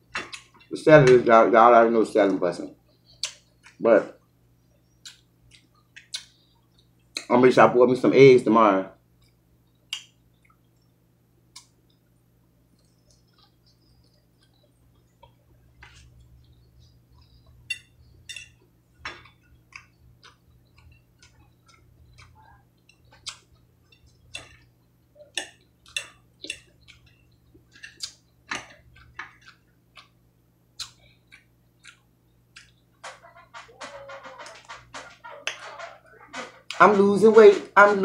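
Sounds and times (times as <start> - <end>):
wet mouth clicks: 3.2 - 3.4, 9.9 - 10.6, 30.8 - 32.8.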